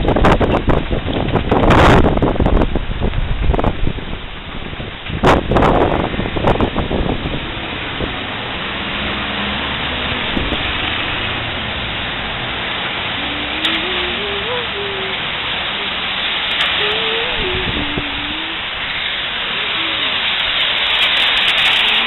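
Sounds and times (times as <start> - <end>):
rain on wet street: 0.0 - 22.0
wind: 0.0 - 22.0
wind buffeting microphone: 0.0 - 22.0
person humming: 13.1 - 18.8, 19.4 - 20.3.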